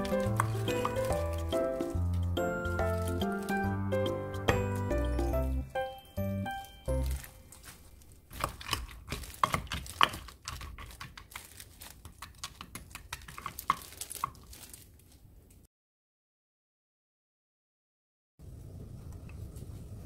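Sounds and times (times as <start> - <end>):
music: 0.0 - 7.5.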